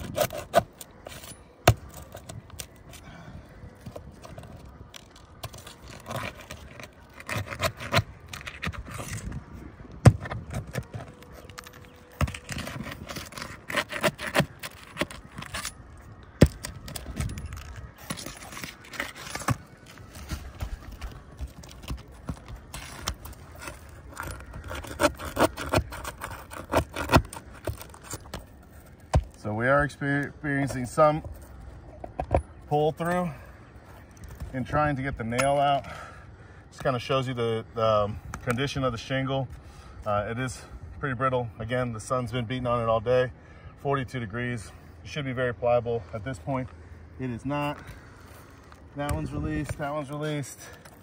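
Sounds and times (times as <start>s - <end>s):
pry bar scraping shingles: 0.0s - 3.1s, 3.8s - 29.4s.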